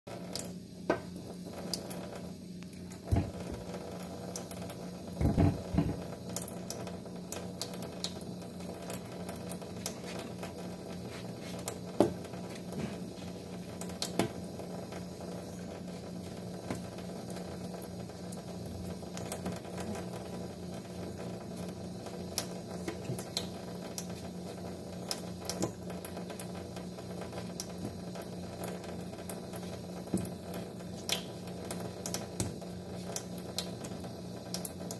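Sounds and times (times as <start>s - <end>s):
tap water into steel sink: 0.2s - 2.2s, 2.8s - 3.7s, 5.1s - 6.8s, 11.6s - 13.0s, 25.1s - 34.9s.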